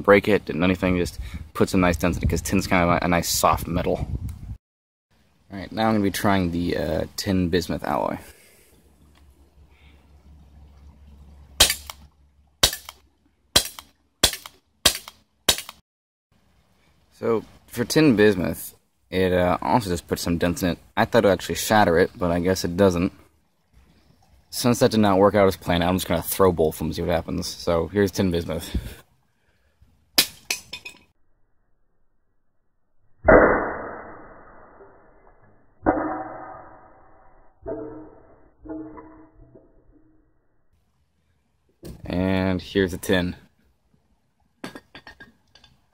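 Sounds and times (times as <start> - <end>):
air pistol shots: 11.6 - 12.0, 13.6 - 15.8
metal chunk impact and rattling bounces: 30.2 - 31.1, 37.6 - 40.1
dull low metal strike: 33.1 - 40.2.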